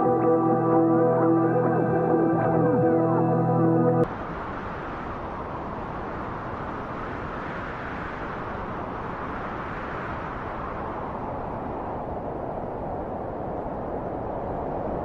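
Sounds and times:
music: 0:00.0 - 0:04.1
outdoor ambience rushing noise: 0:00.0 - 0:15.0.

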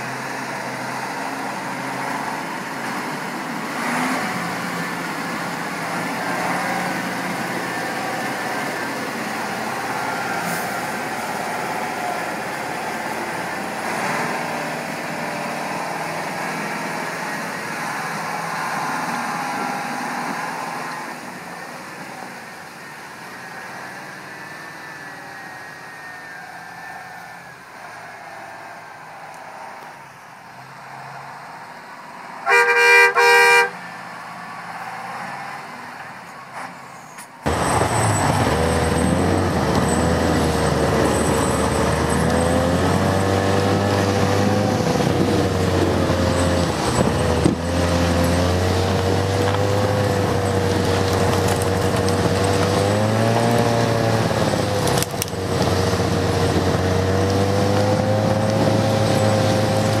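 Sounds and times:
truck diesel engine: 0:00.0 - 1:00.0
two-tone horn: 0:32.4 - 0:33.9.

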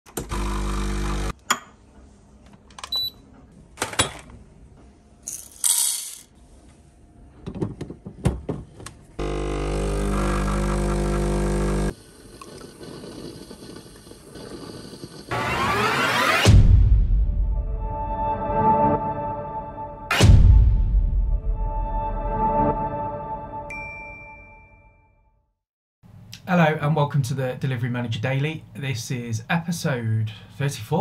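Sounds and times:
espresso pump humming: 0:00.3 - 0:01.3, 0:09.2 - 0:15.3
motor hum: 0:09.2 - 0:12.2.

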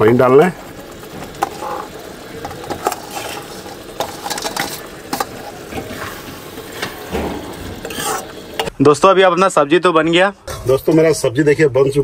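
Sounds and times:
gravy sizzling in a pan: 0:00.0 - 0:08.8
steel spoon clinking and scraping: 0:07.8 - 0:08.7.

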